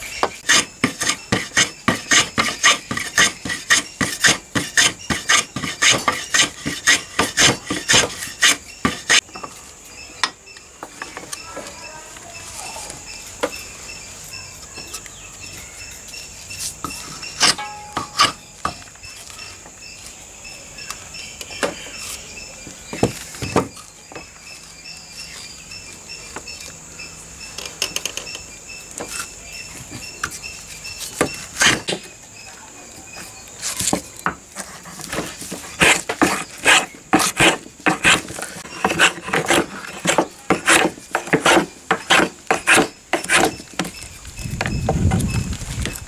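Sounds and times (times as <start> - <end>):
hand plane shaving wood: 0.2 - 9.2, 34.6 - 43.6.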